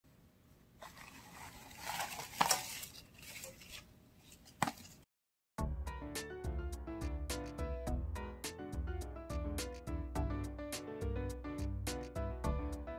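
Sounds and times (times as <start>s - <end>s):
background music with plucked notes: 5.6s - 12.9s.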